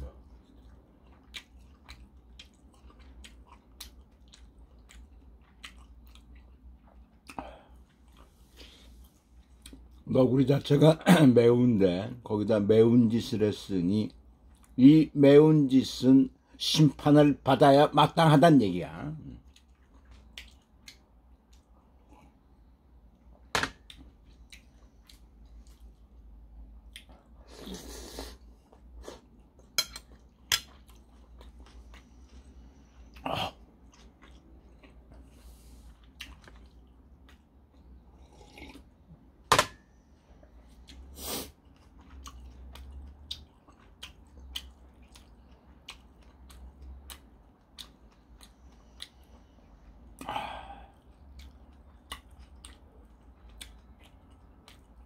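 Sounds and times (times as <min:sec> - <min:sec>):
person chewing: 0:00.0 - 0:10.0, 0:19.4 - 0:39.3, 0:39.9 - 0:55.0.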